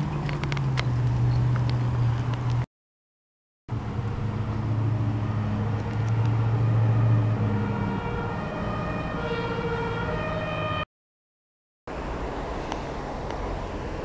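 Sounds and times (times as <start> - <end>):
street traffic: 0.0 - 2.7, 3.7 - 10.9, 11.9 - 14.0
pickup truck engine passing: 3.7 - 10.8
two-tone emergency siren: 5.1 - 10.9.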